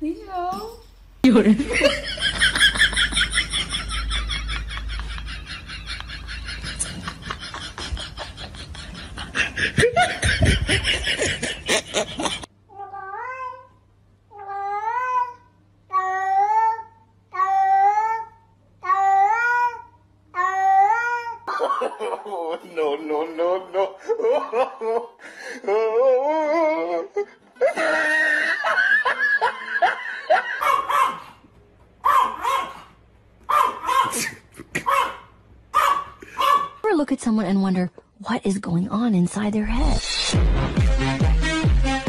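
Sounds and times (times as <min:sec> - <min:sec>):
person laughing hard: 0:01.6 - 0:12.5, 0:21.5 - 0:25.8, 0:27.1 - 0:30.9
dog barking: 0:30.6 - 0:31.4, 0:32.0 - 0:32.9, 0:33.5 - 0:36.8.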